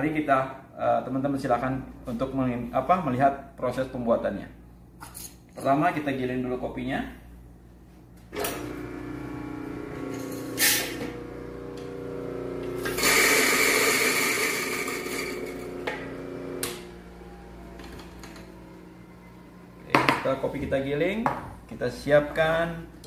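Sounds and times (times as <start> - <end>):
coffee grinder grinding beans: 8.5 - 16.6.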